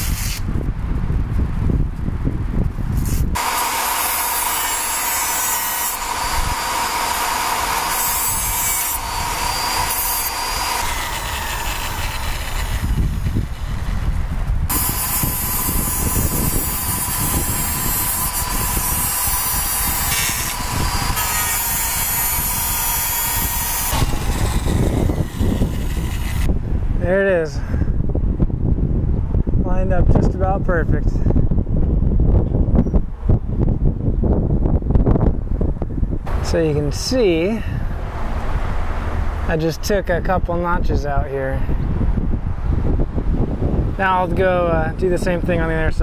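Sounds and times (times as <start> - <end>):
power tool cutting steel: 0.0 - 0.4, 3.0 - 14.0, 14.7 - 26.5.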